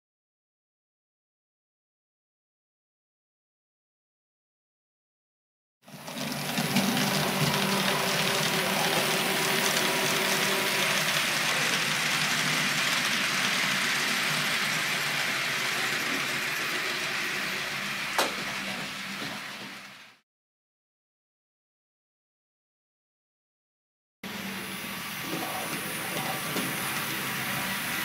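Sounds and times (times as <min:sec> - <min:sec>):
model train motor hum: 0:05.9 - 0:20.2, 0:24.3 - 0:28.0
wheels rolling on track: 0:05.9 - 0:20.2, 0:24.3 - 0:28.0.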